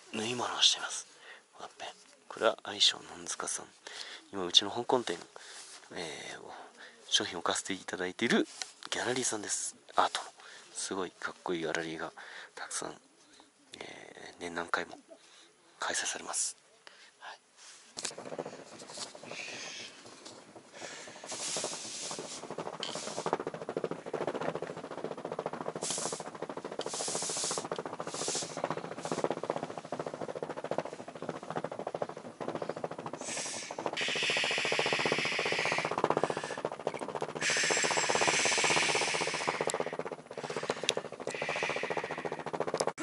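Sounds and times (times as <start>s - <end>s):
steady hiss: 0.0s - 43.0s
fabric rustling: 17.6s - 43.0s
marker scratching on cloth: 18.0s - 43.0s.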